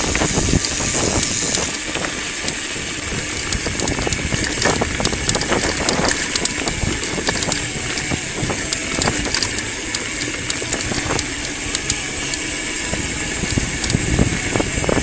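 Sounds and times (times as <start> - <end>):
bike rattling clicks: 0.0 - 15.0
tyres crunching on gravel: 0.0 - 15.0.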